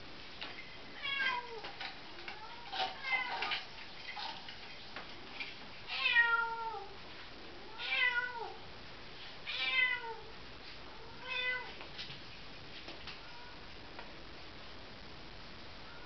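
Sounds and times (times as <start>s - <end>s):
cat meowing: 1.0s - 1.6s, 5.9s - 7.0s, 7.7s - 8.6s, 9.5s - 10.3s, 11.0s - 11.8s, 13.2s - 13.6s.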